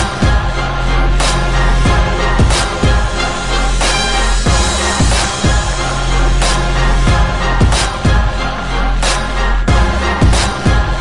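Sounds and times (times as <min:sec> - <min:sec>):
music with thumping beat: 0:00.0 - 0:11.0.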